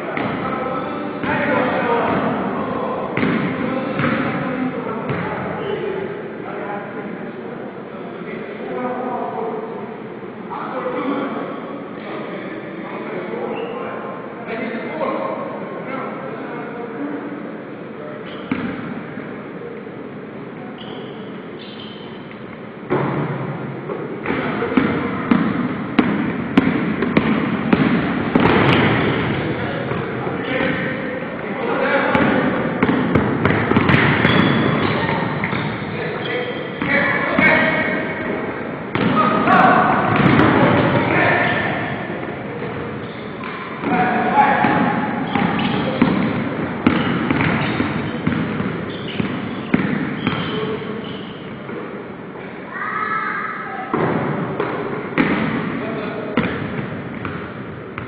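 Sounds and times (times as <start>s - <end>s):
sneaker squeaks: 5.1s - 6.0s, 13.4s - 14.0s, 18.2s - 18.9s, 20.6s - 22.6s, 27.1s - 30.6s, 32.1s - 38.3s, 42.6s - 51.8s
basketball bouncing on wooden floor: 24.2s - 30.0s, 32.1s - 35.8s, 38.9s - 39.2s, 40.1s - 41.0s, 44.6s - 50.6s, 56.4s - 58.0s.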